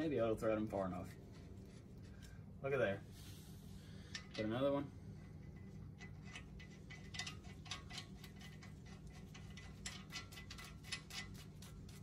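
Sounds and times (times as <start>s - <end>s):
low hum: 0.0s - 12.0s
lug nuts clicking: 5.6s - 11.4s.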